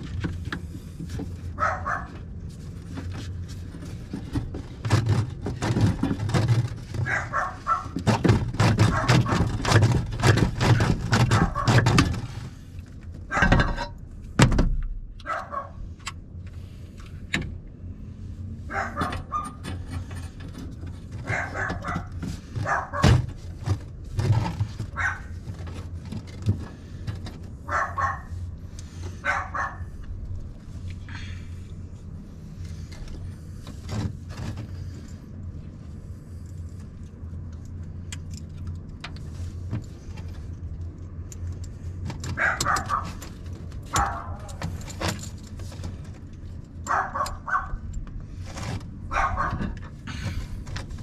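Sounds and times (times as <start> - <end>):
dog barking: 1.6 - 2.2, 7.0 - 8.0, 8.8 - 9.4, 11.4 - 11.8, 15.2 - 15.8, 18.7 - 19.6, 21.2 - 23.2, 24.9 - 25.3, 27.7 - 28.4, 29.2 - 29.9, 42.4 - 43.2, 43.9 - 44.5, 46.9 - 47.8, 49.1 - 49.7
pipe clicking and clatter: 7.8 - 15.3.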